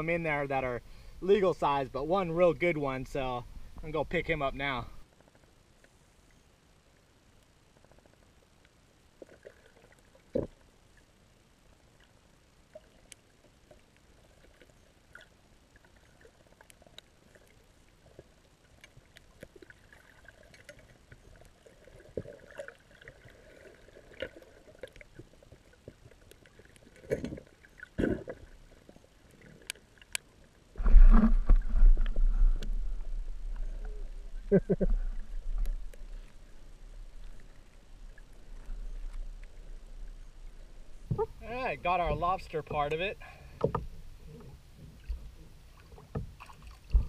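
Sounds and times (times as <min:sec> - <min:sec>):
faint underwater clicks and knocks: 0:11.7 - 0:41.4, 0:42.1 - 0:47.0.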